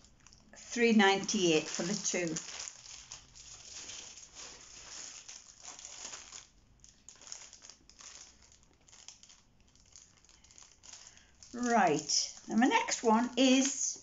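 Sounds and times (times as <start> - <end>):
packaging rustling and crinkling: 0.0 - 14.0.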